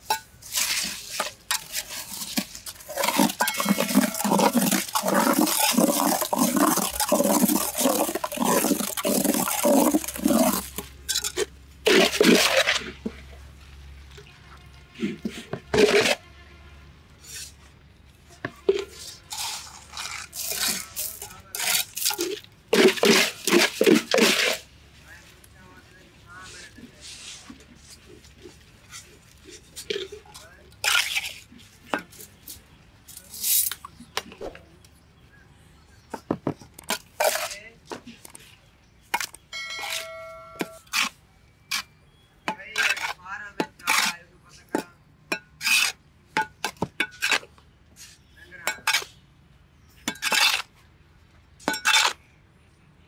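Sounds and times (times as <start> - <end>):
scooping wet concrete mix: 0.0 - 16.2, 17.2 - 34.5, 36.9 - 39.2, 39.8 - 45.0.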